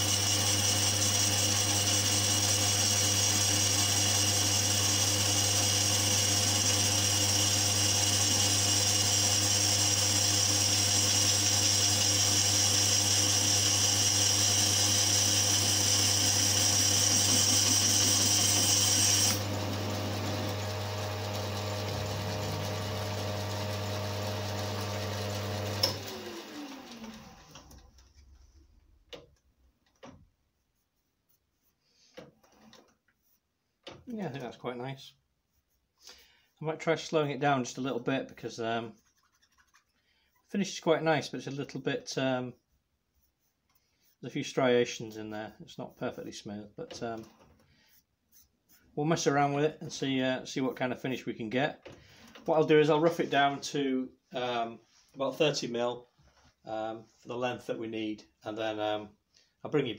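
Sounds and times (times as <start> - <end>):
lathe tool cutting metal: 0.0 - 27.1
lathe motor hum: 0.0 - 27.7
lathe winding down: 0.0 - 27.7.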